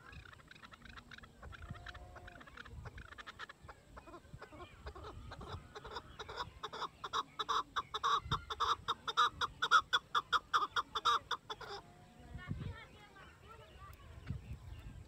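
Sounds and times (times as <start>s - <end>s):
partridge calling chak-chak: 0.0s - 11.9s.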